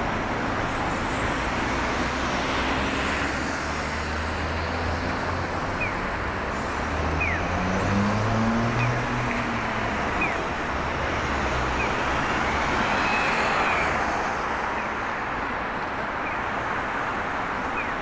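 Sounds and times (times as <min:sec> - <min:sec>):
passing car traffic: 0:00.0 - 0:18.0.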